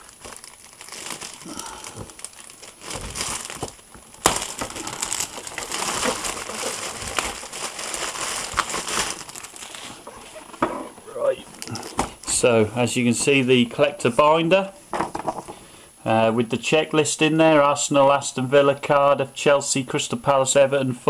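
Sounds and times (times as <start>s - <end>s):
plastic bag crinkling: 0.0s - 12.3s
sharp plastic crack: 2.0s - 9.6s.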